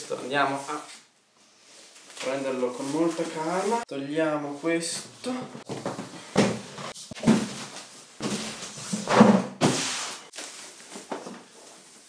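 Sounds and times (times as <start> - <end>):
plastic wrapping rustling: 1.8 - 3.8, 6.9 - 12.0
cardboard box thumps: 7.2 - 9.8.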